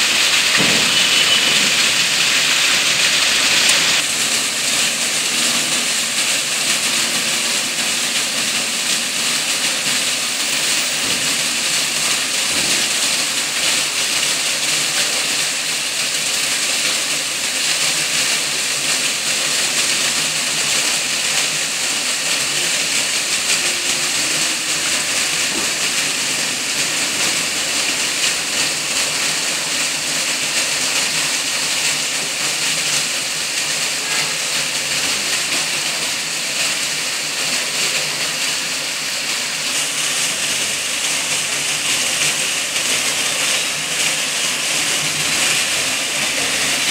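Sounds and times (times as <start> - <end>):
fountain water splashing: 0.0 - 46.9.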